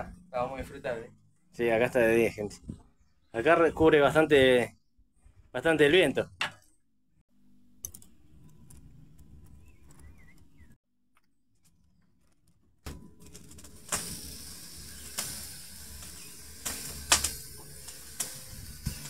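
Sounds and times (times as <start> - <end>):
charcoal fire hissing and crackling: 13.2 - 19.0.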